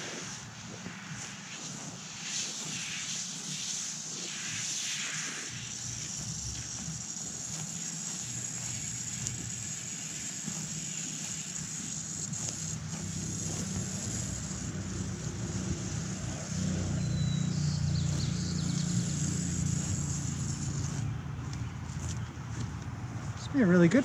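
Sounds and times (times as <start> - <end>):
hose spray nozzle hissing: 0.0 - 21.2
low engine-like hum: 8.2 - 23.5.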